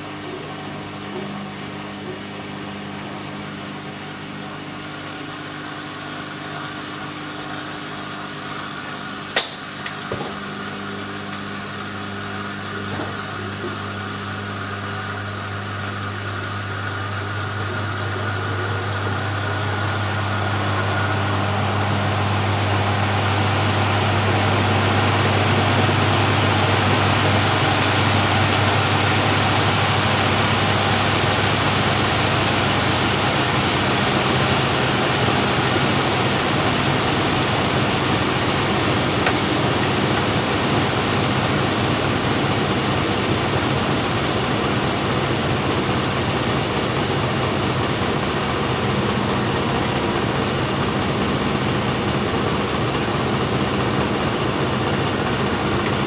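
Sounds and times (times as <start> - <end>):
washing machine motor hum: 0.0 - 56.0
washing machine water rushing: 0.0 - 56.0
washing machine click: 9.4 - 10.4.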